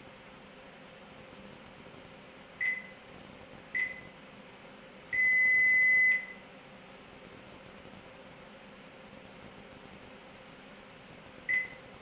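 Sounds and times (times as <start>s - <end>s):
high keypad beeps: 2.6s - 3.0s, 3.8s - 4.1s, 5.2s - 6.4s, 11.5s - 11.8s.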